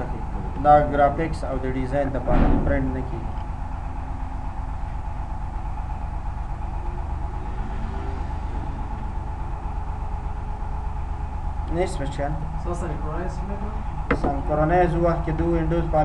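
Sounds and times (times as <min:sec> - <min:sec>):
low droning hum: 0:00.0 - 0:16.0.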